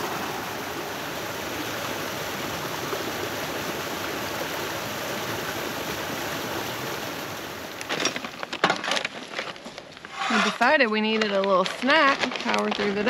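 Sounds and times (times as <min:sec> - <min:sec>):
waterfall rushing over rocks: 0:00.0 - 0:07.9
chip bag crackling: 0:11.2 - 0:13.0.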